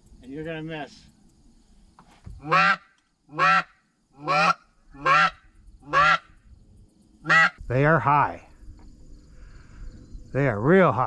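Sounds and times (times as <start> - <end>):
goose call honks: 2.4 - 6.3, 7.2 - 7.6.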